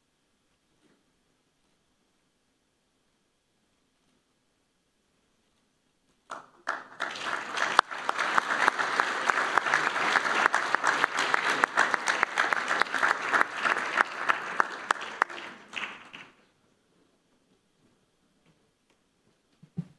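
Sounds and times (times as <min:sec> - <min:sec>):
audience applauding: 0:06.3 - 0:16.4.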